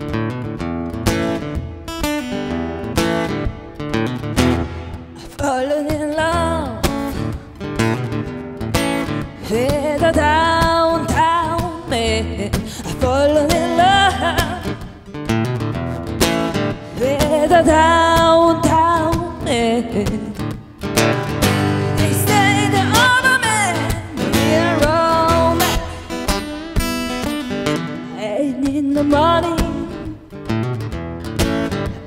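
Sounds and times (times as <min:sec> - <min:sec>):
bending lead guitar melody: 0:00.0 - 0:32.0
live blues band: 0:06.7 - 0:28.2.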